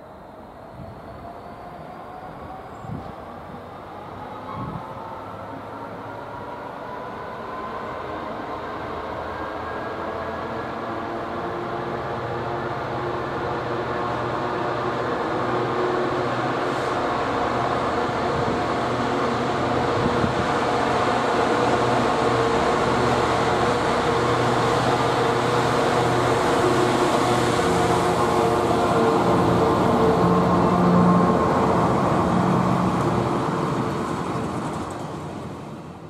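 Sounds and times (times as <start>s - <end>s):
diesel locomotive engine working: 0.0s - 36.0s.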